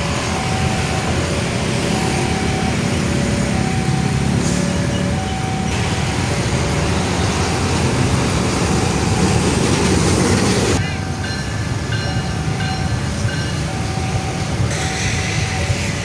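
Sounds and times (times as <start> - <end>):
locomotive rumbling past: 0.0 - 16.0
two-tone signal: 0.1 - 6.4.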